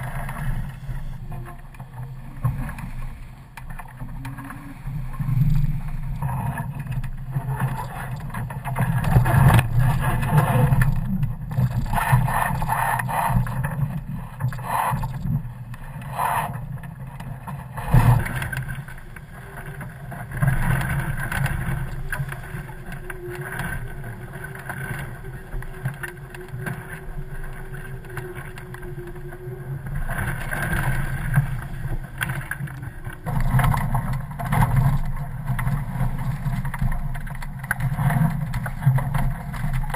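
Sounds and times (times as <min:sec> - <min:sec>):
water noise from hulls: 0:00.0 - 0:39.9.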